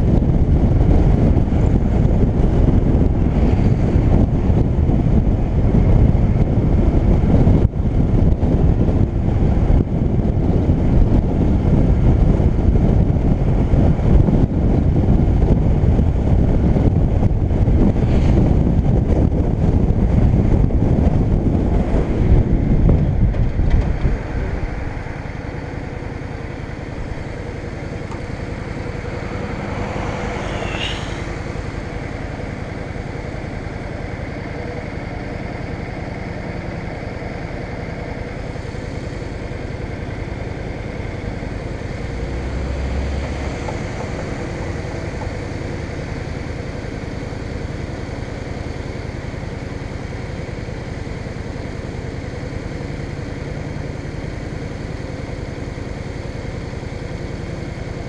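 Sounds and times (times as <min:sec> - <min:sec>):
wind rushing over microphone: 0:00.0 - 0:49.1
motorcycle riding: 0:00.0 - 0:58.0
motorcycle idling: 0:18.5 - 0:42.2, 0:43.5 - 0:58.0.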